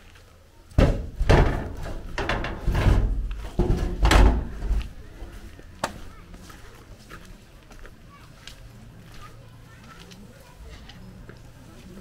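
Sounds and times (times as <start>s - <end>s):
wooden boards knocking and scraping: 0.8s - 5.0s.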